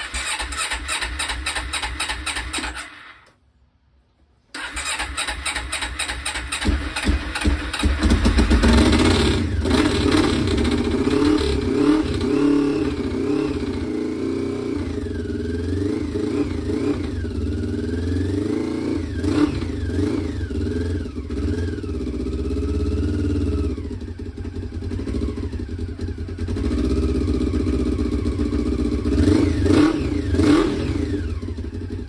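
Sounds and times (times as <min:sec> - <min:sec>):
motorcycle engine cranking: 0:00.0 - 0:03.4, 0:04.5 - 0:13.1
motorcycle engine running with throttle blips: 0:04.6 - 0:32.0.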